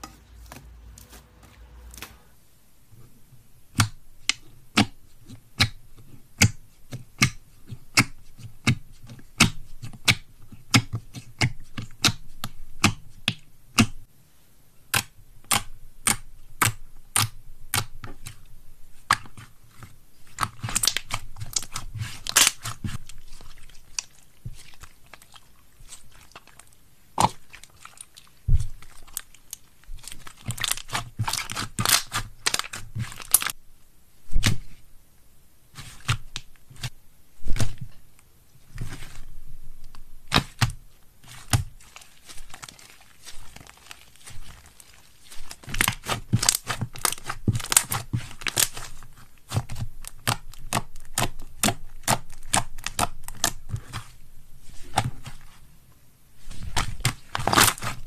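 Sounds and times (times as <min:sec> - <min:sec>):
slime popping and crackling: 0:20.3 - 0:33.6, 0:40.3 - 0:54.1, 0:56.5 - 0:58.0.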